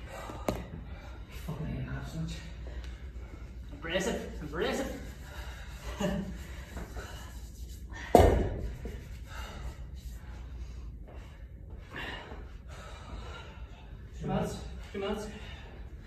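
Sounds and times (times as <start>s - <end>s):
heavy breathing: 0.0s - 16.0s
kettlebell thud on rubber floor: 8.1s - 8.7s.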